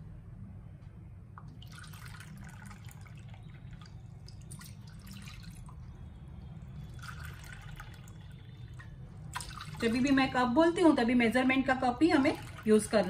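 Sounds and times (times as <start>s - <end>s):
water pouring into a pan: 1.6s - 5.8s, 6.7s - 10.1s
water splashing and trickling: 1.6s - 10.3s, 12.0s - 13.0s.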